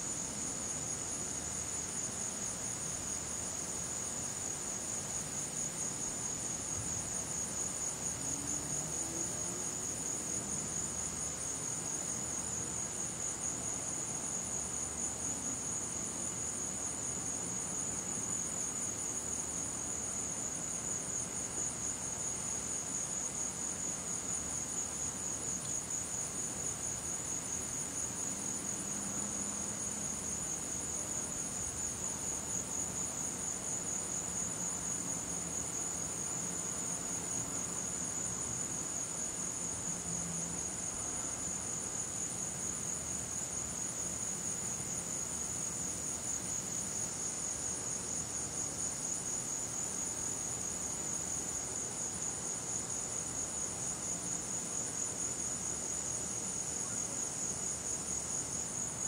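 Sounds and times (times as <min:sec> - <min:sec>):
insect chorus: 0:00.0 - 0:59.0.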